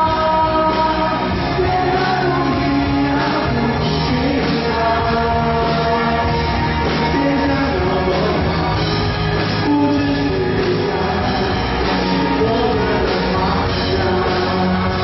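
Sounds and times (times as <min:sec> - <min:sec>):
man singing into microphone: 0:00.0 - 0:15.0
musical accompaniment: 0:00.0 - 0:15.0.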